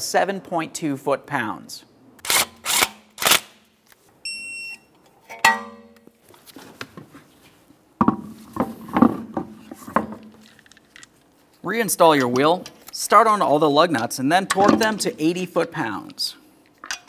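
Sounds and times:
sharp metallic clank: 5.3s - 6.0s
wheel knocks and clunks: 8.0s - 10.4s.

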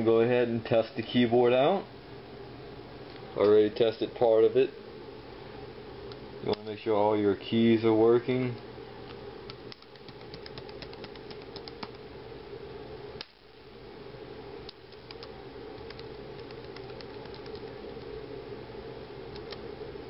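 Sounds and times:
laptop keys clicking: 9.5s - 12.0s, 14.8s - 18.1s, 19.3s - 19.6s.

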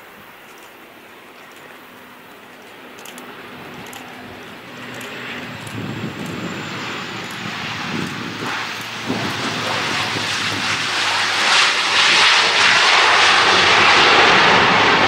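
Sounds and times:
turboprop airliner on approach: 0.0s - 15.0s.

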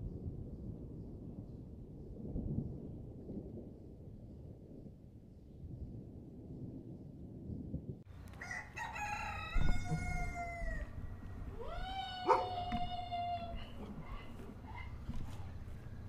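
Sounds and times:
rooster crowing: 8.3s - 15.0s.

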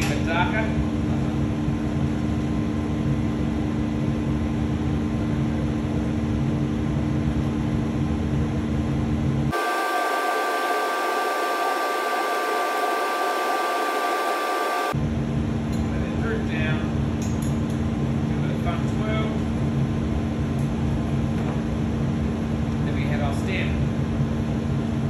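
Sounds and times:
hiss with high whining tones: 9.5s - 15.0s.

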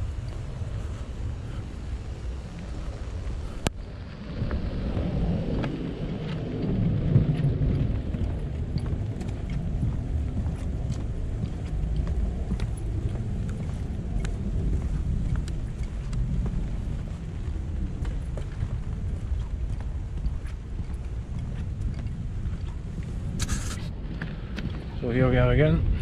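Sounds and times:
wind buffeting microphone: 0.0s - 26.0s
sharp ticks and taps: 7.4s - 23.6s.

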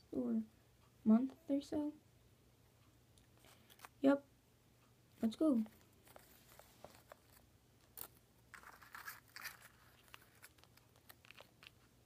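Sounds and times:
rustling: 5.6s - 12.0s.

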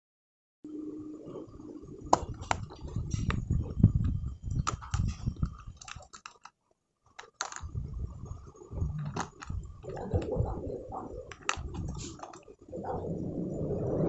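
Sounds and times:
plastic clicks and clatters: 2.1s - 7.8s, 9.0s - 10.4s, 11.2s - 12.6s.

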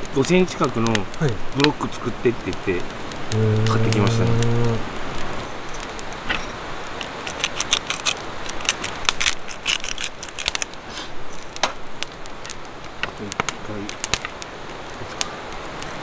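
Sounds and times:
steel skewers clicking: 7.0s - 10.7s.

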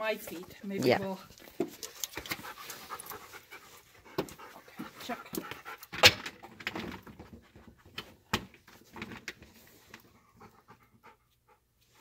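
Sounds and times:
dog panting: 1.0s - 6.0s, 10.0s - 12.0s.

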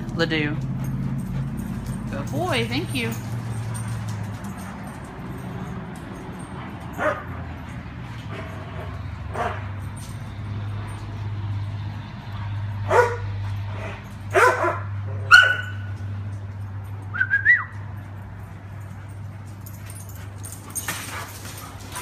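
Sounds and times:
dogs barking: 0.6s - 9.9s, 12.4s - 16.1s
dog yelp: 14.3s - 15.9s.

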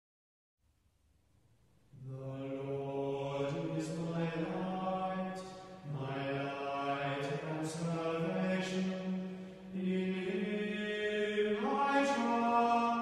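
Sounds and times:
person chant-like singing: 2.0s - 13.0s.

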